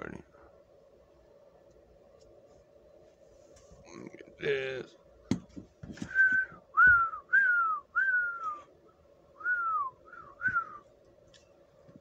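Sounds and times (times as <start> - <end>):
faint steady hum: 0.0 - 12.0
person whistling: 6.0 - 8.7, 9.4 - 10.9.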